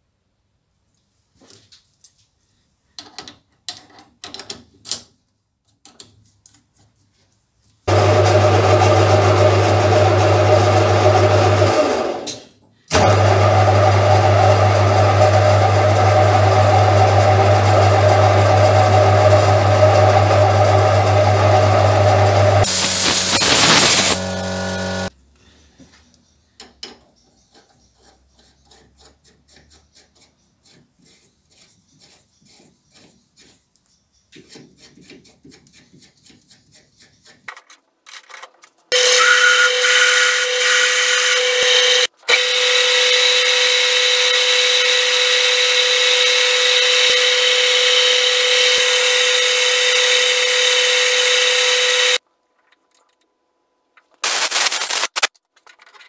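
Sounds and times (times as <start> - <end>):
lathe motor humming: 7.9 - 12.2, 13.0 - 25.1, 39.0 - 52.2
harsh loud machine noise: 21.1 - 25.1, 39.0 - 52.2.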